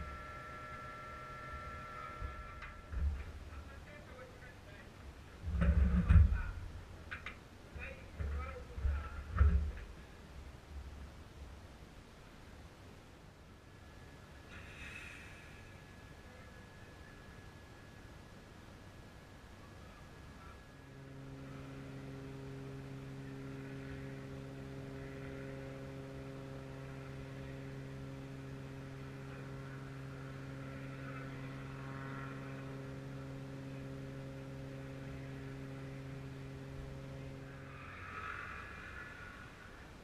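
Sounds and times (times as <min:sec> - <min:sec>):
machine hum: 0:00.0 - 0:40.0
short hiss: 0:14.5 - 0:15.9.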